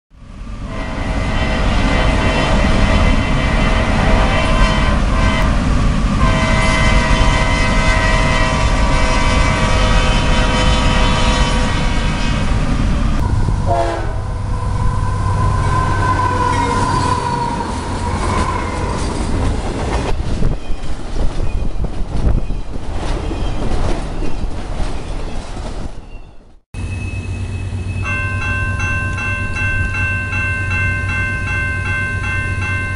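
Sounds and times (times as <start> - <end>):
locomotive air horn: 0.6 - 5.6, 6.2 - 19.1.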